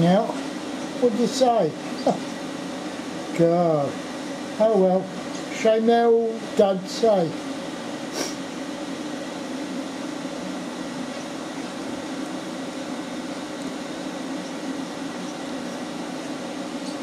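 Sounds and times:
steady mechanical hum: 0:00.0 - 0:17.0
even hiss: 0:08.0 - 0:08.5.

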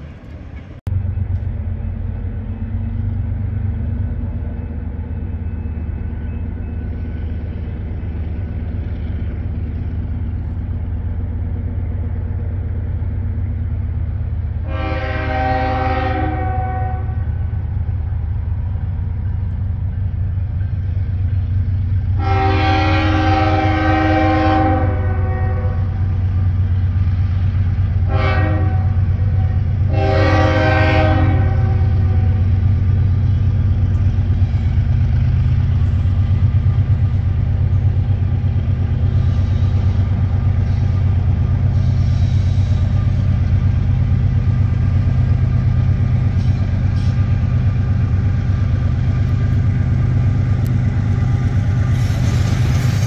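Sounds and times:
diesel locomotive rumble: 0:00.0 - 0:53.0
train air horn: 0:14.6 - 0:17.3, 0:22.1 - 0:26.1, 0:28.0 - 0:32.6, 0:51.8 - 0:53.0.

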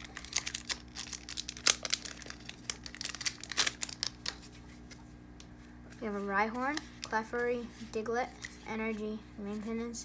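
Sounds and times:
foil wrapper tearing: 0:00.0 - 0:04.5
foil wrapper crinkling: 0:00.0 - 0:05.0.

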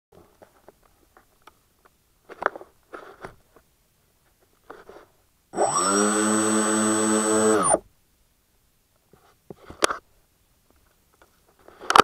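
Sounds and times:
electric motors and propellers whining: 0:05.6 - 0:07.8.

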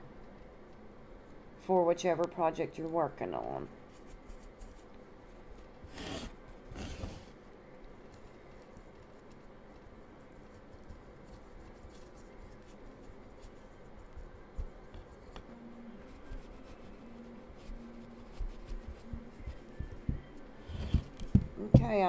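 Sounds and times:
wipe rubbing on clay: 0:05.9 - 0:07.2, 0:16.1 - 0:19.6
light scratches and taps: 0:08.1 - 0:15.5, 0:16.1 - 0:22.0.

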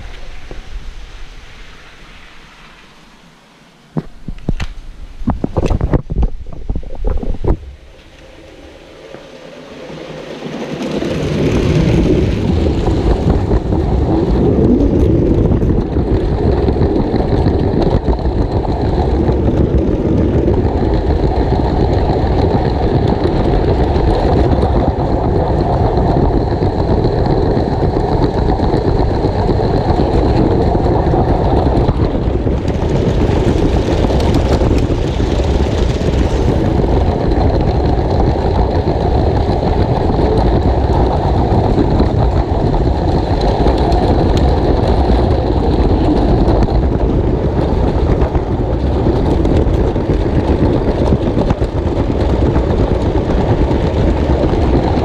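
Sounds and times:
passing toy train hiss: 0:00.0 - 0:03.8.

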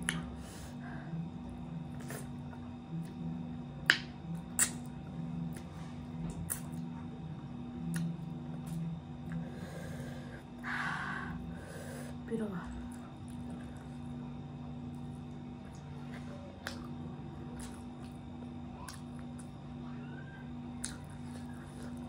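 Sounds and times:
steady low hum: 0:00.0 - 0:22.0
lip smacks while chewing: 0:03.9 - 0:05.7, 0:20.8 - 0:22.0.

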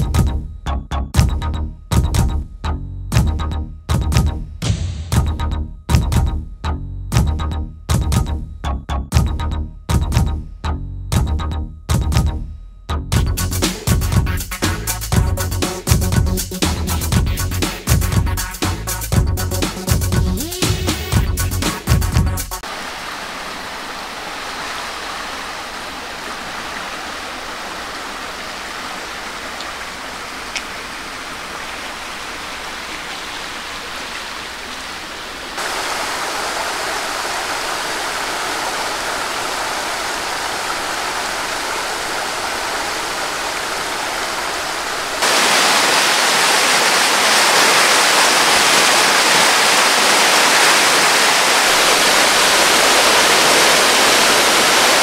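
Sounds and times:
floodwater rushing: 0:22.6 - 0:55.0.

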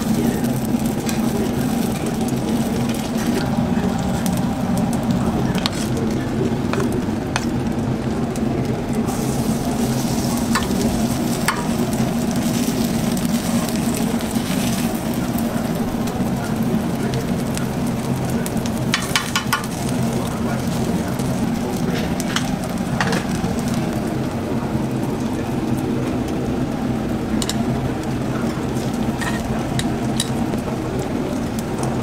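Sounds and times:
low hum: 0:00.0 - 0:18.9
pancakes sizzling on griddle: 0:00.0 - 0:32.0
spatula clicking on griddle: 0:18.9 - 0:19.7.

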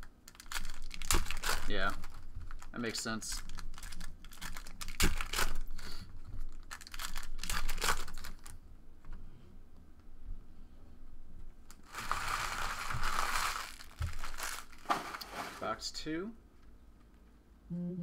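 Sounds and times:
packaging crinkling and tearing: 0:00.2 - 0:08.6, 0:11.7 - 0:15.7.

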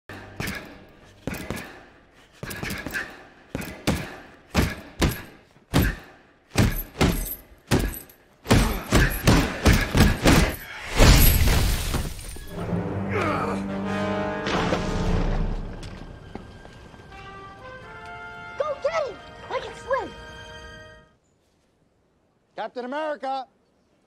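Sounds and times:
punches thudding into heavy bag: 0:06.6 - 0:12.1.

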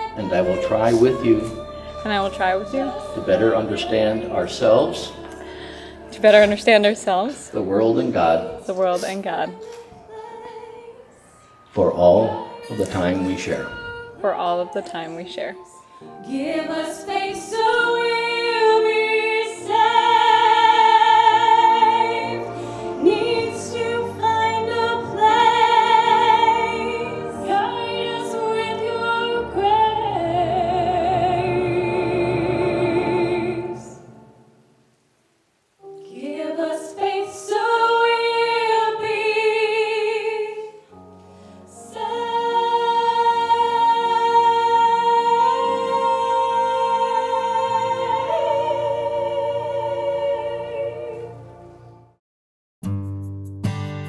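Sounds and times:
two women singing through speaker: 0:00.0 - 0:07.4, 0:08.1 - 0:34.3, 0:35.9 - 0:40.9, 0:41.7 - 0:51.4.

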